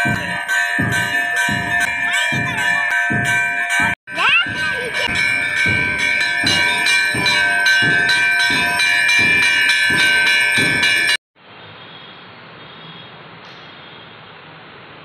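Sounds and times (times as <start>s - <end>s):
temple bells ringing: 0.0s - 11.2s.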